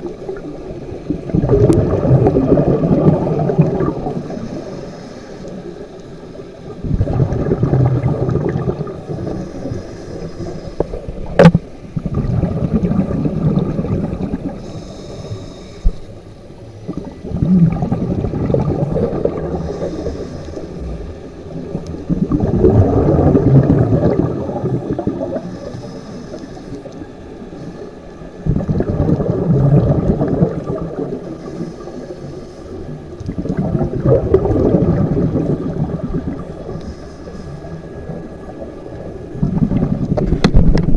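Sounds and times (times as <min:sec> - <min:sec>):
gurgling exhaled bubbles: 0:00.0 - 0:04.7, 0:06.4 - 0:15.1, 0:16.6 - 0:26.1, 0:28.2 - 0:32.2, 0:32.8 - 0:40.9
hiss of inhalation: 0:04.2 - 0:05.9, 0:09.1 - 0:11.2, 0:14.6 - 0:16.2, 0:19.5 - 0:21.2, 0:25.3 - 0:27.9, 0:31.3 - 0:33.0, 0:36.6 - 0:38.2.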